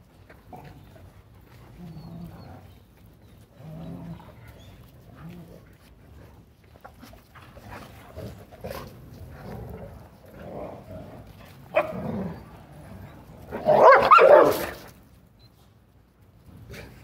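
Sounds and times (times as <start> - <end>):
dogs barking: 11.7 - 12.0, 13.6 - 14.8.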